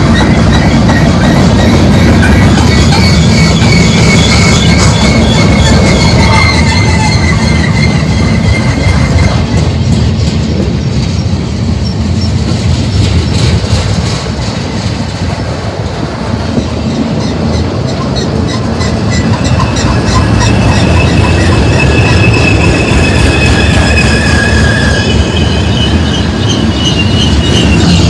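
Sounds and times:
high wheel squeal: 0:00.0 - 0:09.8, 0:16.6 - 0:28.0
steel wheels rumbling on rail: 0:00.0 - 0:28.0.

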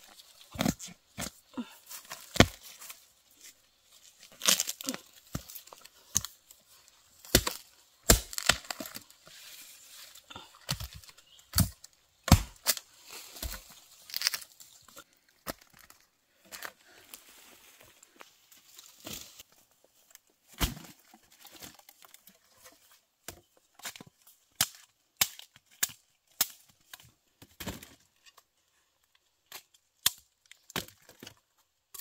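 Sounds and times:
earth crumbling and roots cracking: 0:00.0 - 0:28.5
hoe striking soil: 0:07.2 - 0:09.0, 0:10.7 - 0:12.8.

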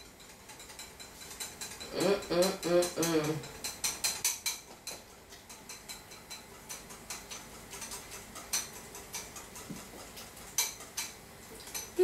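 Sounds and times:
whisk clicking against bowl: 0:00.0 - 0:12.0.

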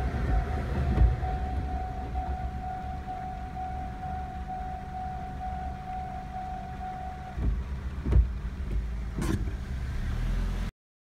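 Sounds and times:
level-crossing warning bell: 0:00.0 - 0:07.4
low rumble: 0:00.0 - 0:09.7.

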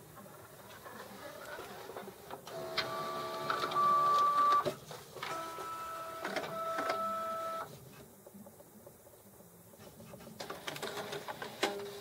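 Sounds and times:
printer motors whining: 0:00.8 - 0:07.7.

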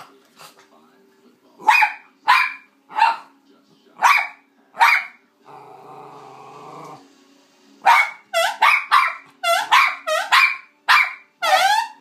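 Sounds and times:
dog yapping: 0:07.9 - 0:12.0.

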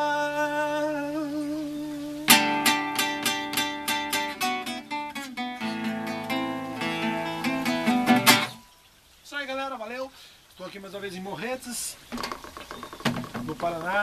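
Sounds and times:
acoustic guitar strumming chords: 0:02.3 - 0:08.7.

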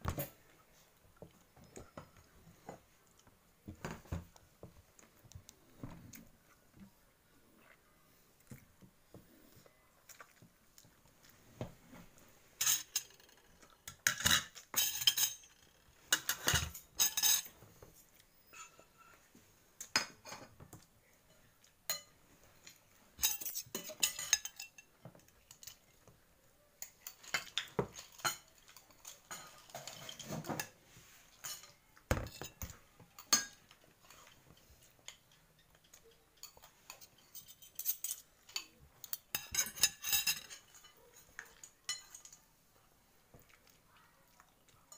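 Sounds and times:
cutlery clinking on plates: 0:12.6 - 0:17.6, 0:18.4 - 0:25.9, 0:26.8 - 0:42.5.

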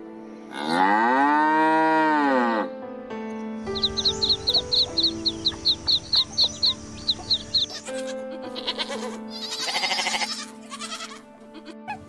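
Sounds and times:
background music: 0:00.0 - 0:12.0
chicks peeping: 0:03.6 - 0:09.2
goat bleating: 0:07.5 - 0:12.0.

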